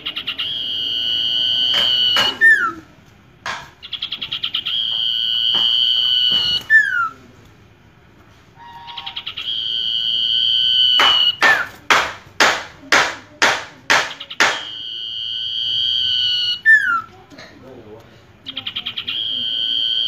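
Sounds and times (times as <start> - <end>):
bird singing trills and whistles: 0.0 - 2.8, 8.6 - 11.4, 18.5 - 20.0.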